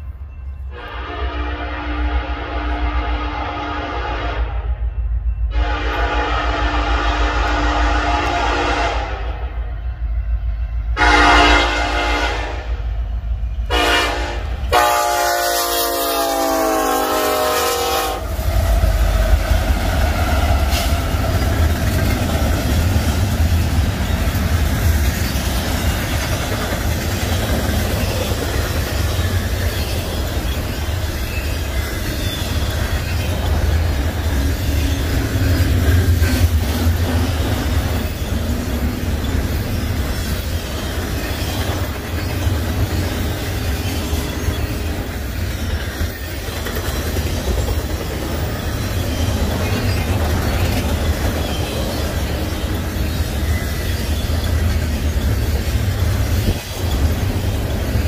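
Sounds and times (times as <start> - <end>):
freight cars rumbling on rails: 0.0 - 58.0
locomotive air horn blasts: 0.7 - 4.7, 5.5 - 9.5, 11.0 - 12.9, 13.7 - 18.6.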